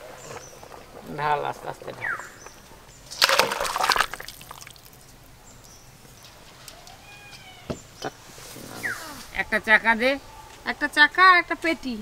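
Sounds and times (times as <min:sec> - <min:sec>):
liquid splashing into metal bowl: 0:03.2 - 0:04.9.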